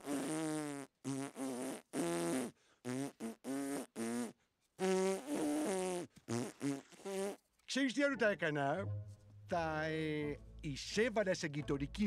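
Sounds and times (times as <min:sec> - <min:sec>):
buzzing lips whistling a tune: 0:00.0 - 0:07.4.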